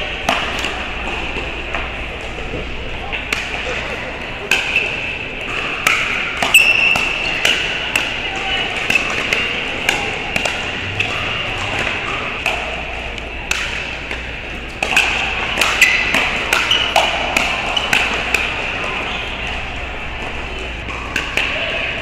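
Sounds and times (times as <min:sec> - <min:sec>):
background din of hall: 0:00.0 - 0:22.0.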